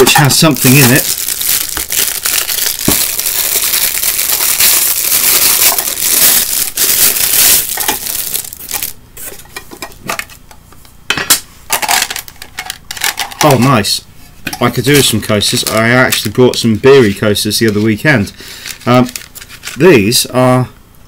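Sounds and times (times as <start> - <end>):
plastic wrap crinkling and tearing: 0.0 - 9.3, 15.0 - 20.0.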